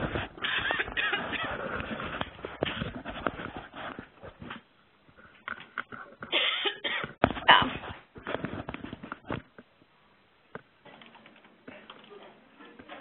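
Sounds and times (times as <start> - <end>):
person coughing: 6.3 - 7.2.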